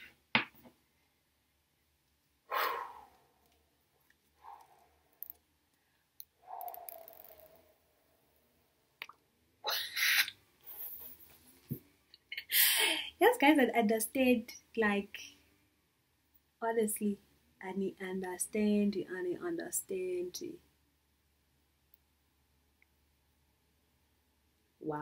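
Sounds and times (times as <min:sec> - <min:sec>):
woman laughing breathily: 0:12.4 - 0:13.2.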